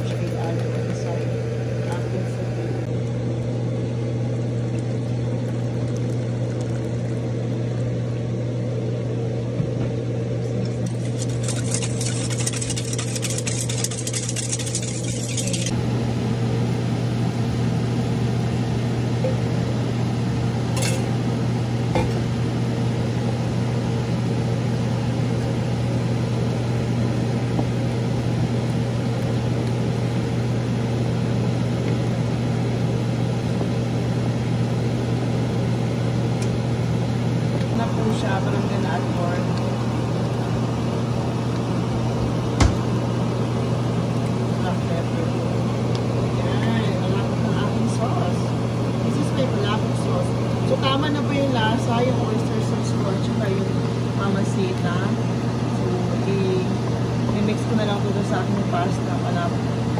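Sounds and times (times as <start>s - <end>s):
steady low hum: 0.0s - 59.9s
whisk scraping metal bowl: 10.6s - 15.7s
wooden spoon stirring: 10.7s - 15.7s.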